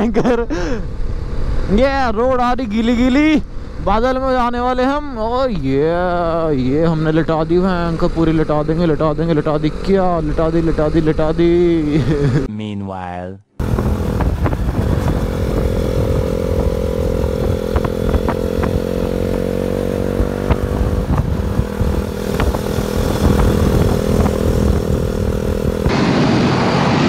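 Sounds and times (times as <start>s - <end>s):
wind and road noise: 0.0s - 12.5s, 13.6s - 27.0s
motorcycle engine cruising: 6.0s - 12.5s, 13.6s - 27.0s.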